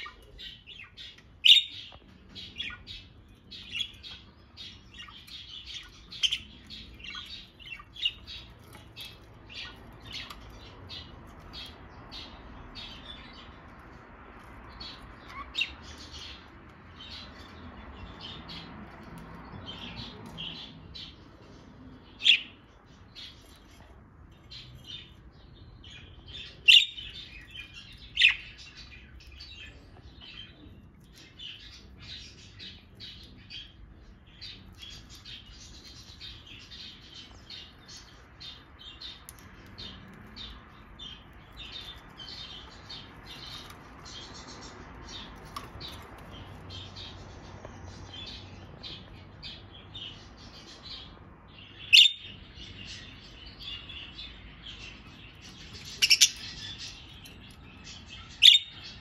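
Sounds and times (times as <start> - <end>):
budgerigars chirping: 0.0 - 13.6, 14.6 - 18.7, 25.8 - 47.1, 51.7 - 59.0.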